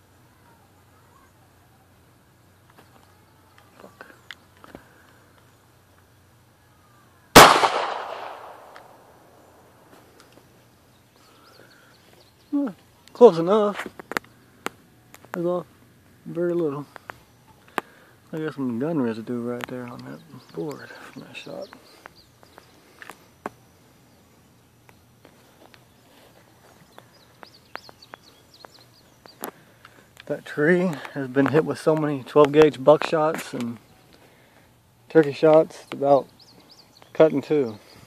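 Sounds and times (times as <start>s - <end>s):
quiet outdoor background: 0.0s - 38.0s
pistol shot echoing: 7.3s - 9.4s.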